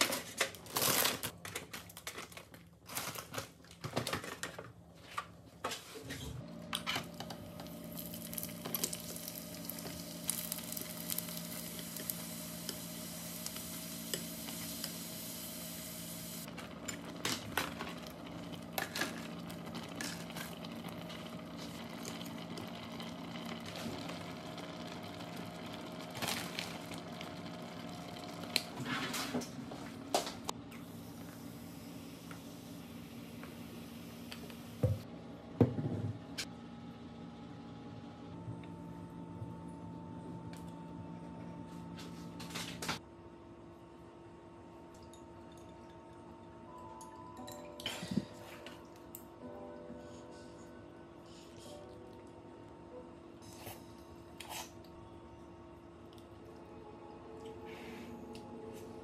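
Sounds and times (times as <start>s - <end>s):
hob hum: 6.4s - 35.0s
food sizzling in frying pan: 7.4s - 16.5s.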